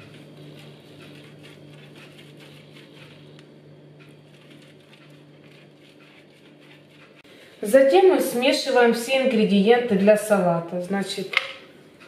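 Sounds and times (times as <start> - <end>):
grater scraping: 0.0 - 7.3
low steady hum: 0.0 - 12.0.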